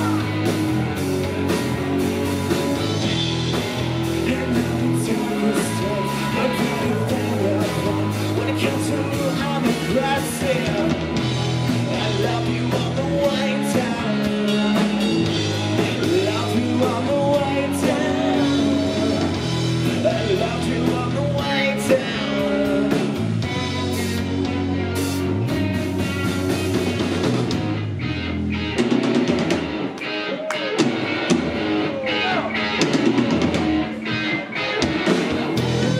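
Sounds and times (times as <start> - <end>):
live rock band playing: 0.0 - 35.9
man singing: 4.0 - 23.6.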